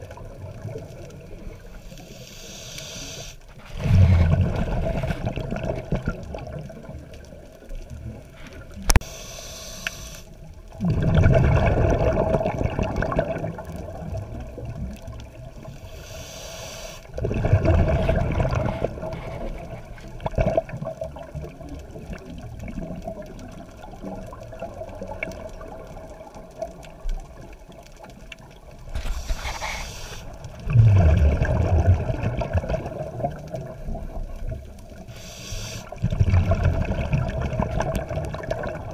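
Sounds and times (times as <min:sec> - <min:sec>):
bubbling exhaust underwater: 0:00.0 - 0:38.9
regulator hissing inhale: 0:01.8 - 0:04.1, 0:09.0 - 0:10.4, 0:15.7 - 0:17.2, 0:29.0 - 0:30.5, 0:35.1 - 0:36.0.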